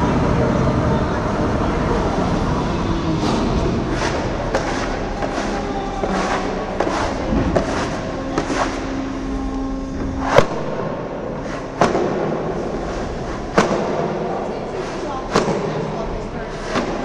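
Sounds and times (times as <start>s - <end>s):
low held tone: 0.0s - 16.5s
steady noisy background: 0.0s - 17.0s
sharp knocks and cracks: 11.8s - 12.4s, 13.5s - 14.2s.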